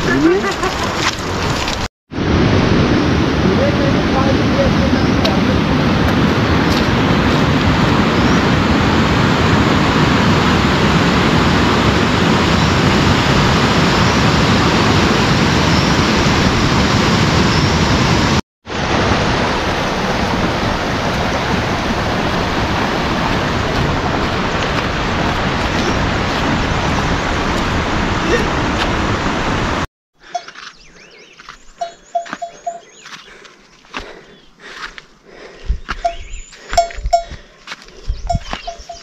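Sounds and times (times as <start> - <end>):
heavy rain: 0.0 - 29.9.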